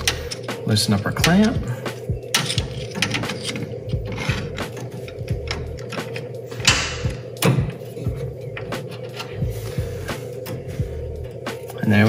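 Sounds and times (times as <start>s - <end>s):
metal tool clicks and knocks: 2.3s - 7.8s.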